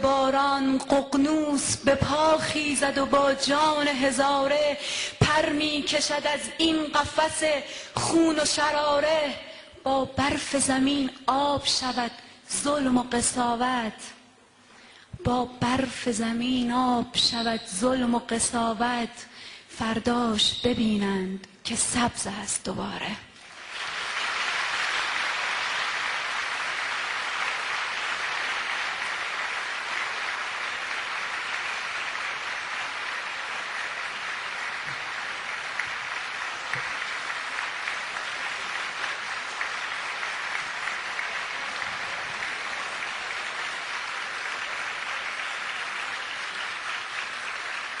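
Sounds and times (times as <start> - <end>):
audience applauding: 23.4 - 48.0.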